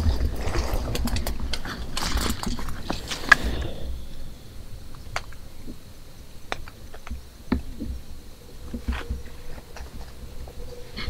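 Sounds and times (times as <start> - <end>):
brush and leaves rustling: 0.0 - 11.0
wind rumble on microphone: 0.0 - 11.0
small ticks and snaps: 6.5 - 10.6.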